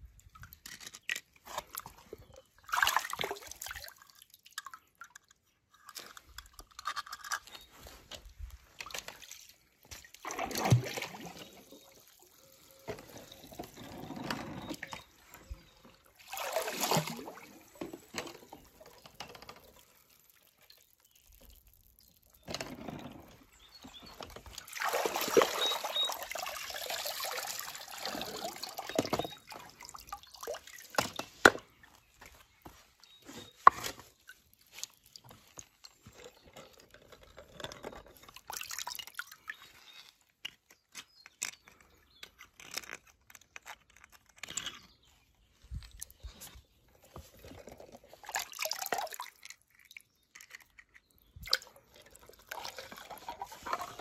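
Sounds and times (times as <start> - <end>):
small clicks and knocks: 0.4 - 2.0, 49.6 - 51.4
water splashing and pouring: 2.6 - 5.2, 8.7 - 32.0, 38.2 - 39.8, 47.1 - 50.0, 51.4 - 54.0.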